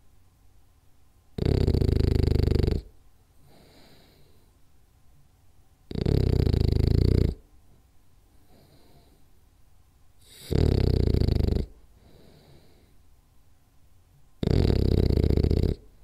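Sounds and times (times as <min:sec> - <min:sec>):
dog snoring: 0:01.3 - 0:04.4, 0:05.9 - 0:07.5, 0:08.4 - 0:09.2, 0:10.2 - 0:12.9, 0:14.4 - 0:16.0.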